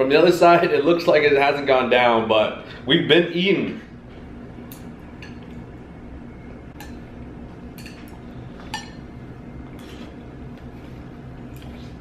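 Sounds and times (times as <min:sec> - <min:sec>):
steady low hum: 0:00.0 - 0:12.0
utensils clinking against plates: 0:07.7 - 0:09.1.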